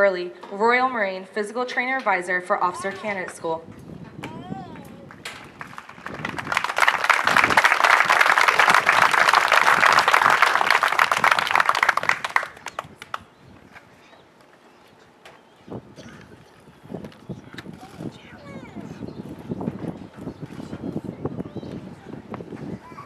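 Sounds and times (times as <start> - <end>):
crowd applauding: 5.1 - 13.2.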